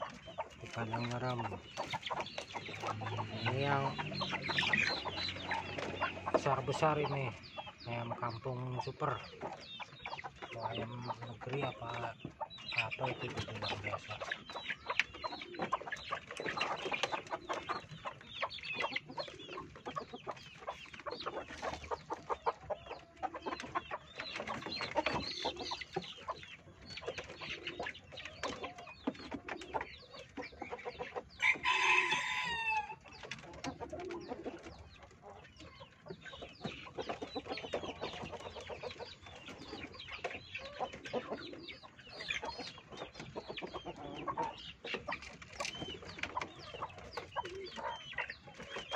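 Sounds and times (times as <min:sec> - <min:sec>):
chickens clucking: 0:00.0 - 0:48.9
rooster crowing: 0:31.4 - 0:33.0.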